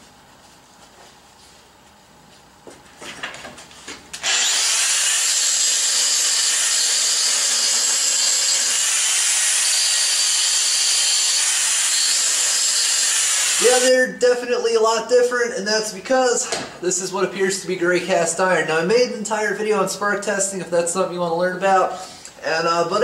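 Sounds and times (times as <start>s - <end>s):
angle grinder grinding metal: 4.2s - 13.9s.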